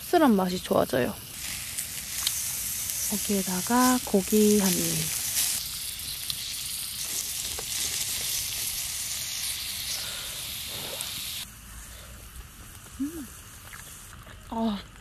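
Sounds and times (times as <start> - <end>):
beef sizzling on a griddle: 0.0 - 14.7
person humming: 13.0 - 13.4.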